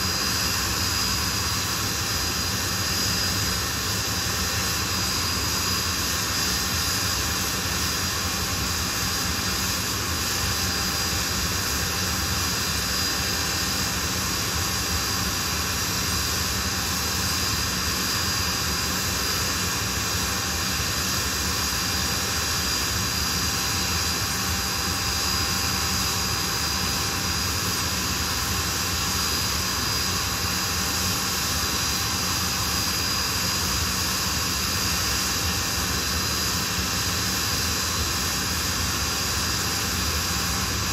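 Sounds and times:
jet engines running: 0.0s - 40.9s.

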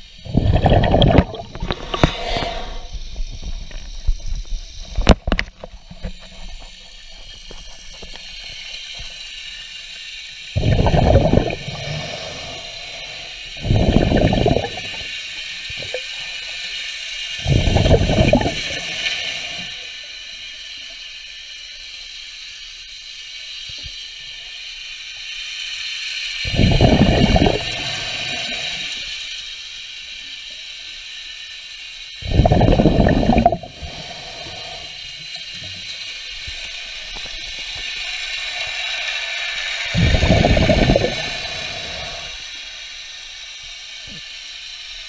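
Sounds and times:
air bubbling underwater: 0.0s - 2.9s, 10.6s - 16.1s, 17.4s - 19.6s, 26.5s - 29.0s, 32.2s - 35.0s, 39.8s - 42.4s
faint hiss: 0.0s - 45.0s.

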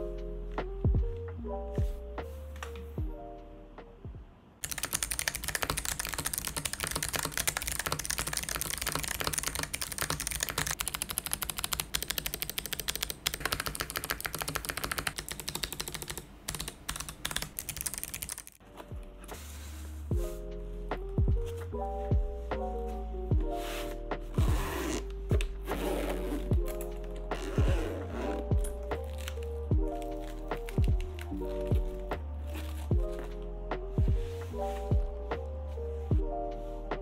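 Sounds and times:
soft music: 0.0s - 10.8s, 18.6s - 37.0s
fast typing on clicky keyboard: 4.6s - 18.6s.

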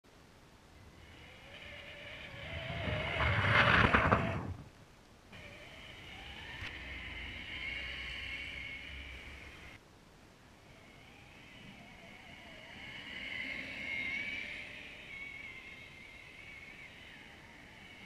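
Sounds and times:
electric motor whining: 1.0s - 4.5s, 5.4s - 9.8s
plastic tracks churning snow: 1.1s - 4.8s.

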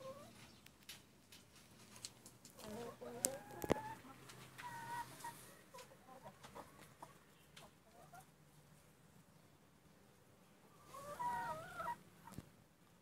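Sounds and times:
chicken clucking: 0.0s - 0.6s, 2.5s - 8.3s, 10.8s - 12.4s.

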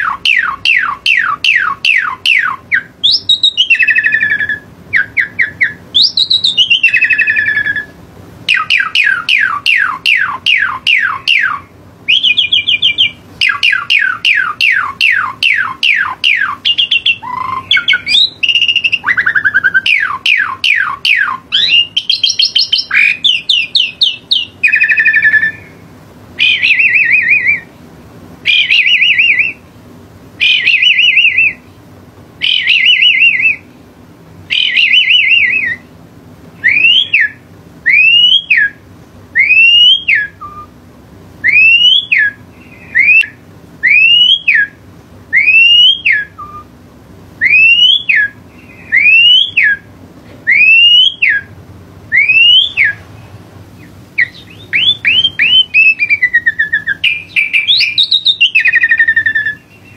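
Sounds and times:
whistled notes sweeping up: 26.4s - 27.7s, 36.6s - 38.8s, 41.4s - 46.7s, 47.4s - 49.8s, 50.5s - 51.5s, 52.1s - 53.0s, 54.2s - 59.9s.

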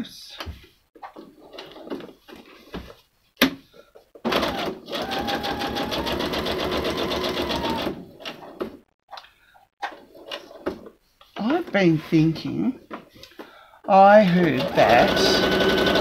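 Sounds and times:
sewing machine stitching: 4.3s - 8.6s, 14.3s - 16.0s.

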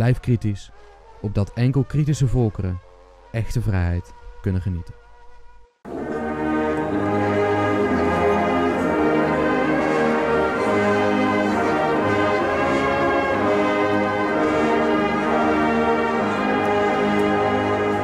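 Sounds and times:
military brass band playing chords: 5.9s - 18.0s.

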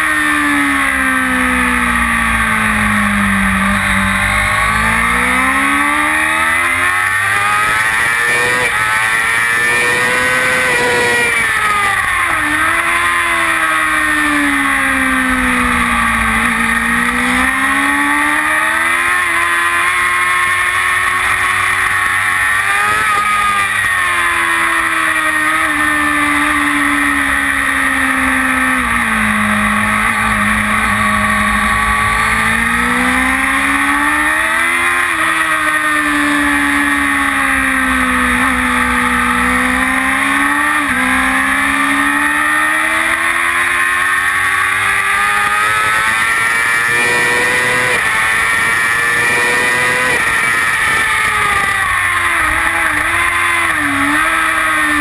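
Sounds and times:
motorcycle engine running hard: 0.0s - 55.0s.

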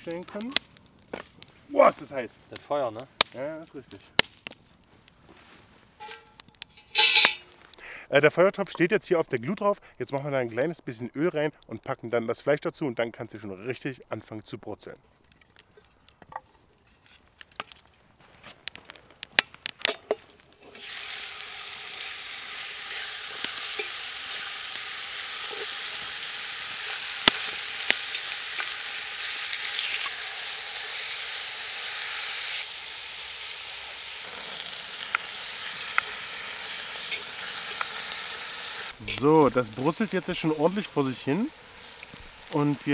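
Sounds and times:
meat sizzling in oil: 20.6s - 42.9s.

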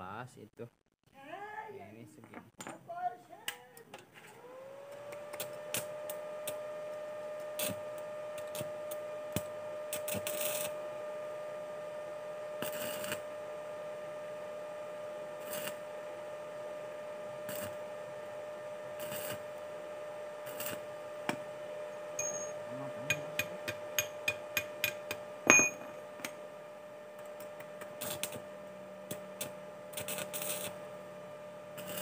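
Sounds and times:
welding arc crackling: 5.3s - 6.6s, 7.4s - 10.8s, 12.6s - 13.3s, 15.3s - 15.9s, 17.3s - 17.8s, 18.9s - 19.6s, 20.4s - 21.4s, 27.2s - 31.0s, 31.7s - 32.0s
steady high whine: 5.3s - 32.0s.

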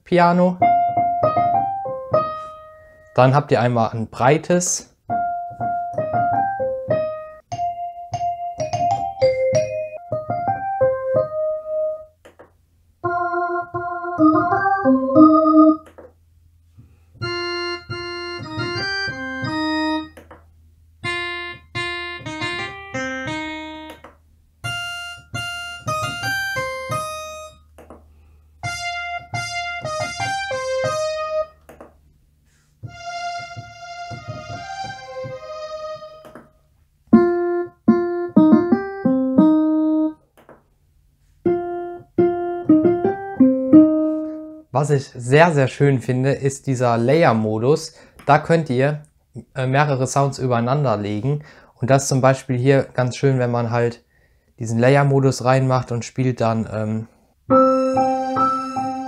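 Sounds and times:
digital piano melody: 0.2s - 3.4s, 5.0s - 12.3s, 13.0s - 15.9s, 17.2s - 20.4s, 21.0s - 27.7s, 28.6s - 31.7s, 32.9s - 36.5s, 37.1s - 40.3s, 41.4s - 44.7s, 57.5s - 59.0s.

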